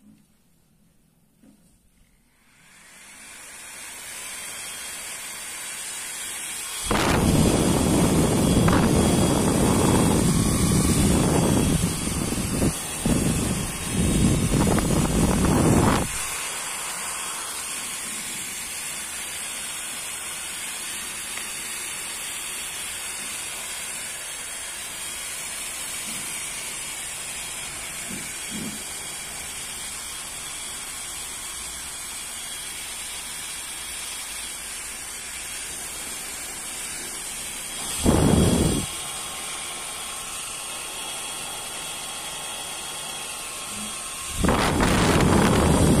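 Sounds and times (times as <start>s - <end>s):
blower fan hissing: 2.0s - 46.0s
air hitting microphone: 6.9s - 16.2s, 37.8s - 38.9s.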